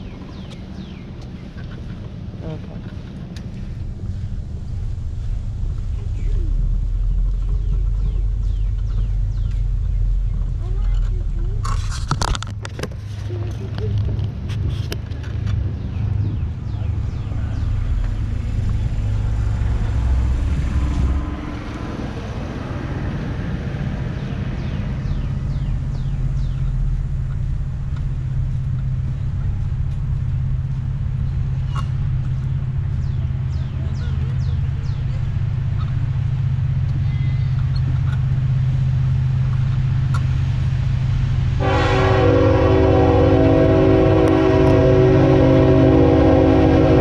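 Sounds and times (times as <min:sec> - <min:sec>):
loud horn blast: 0:41.6 - 0:47.0.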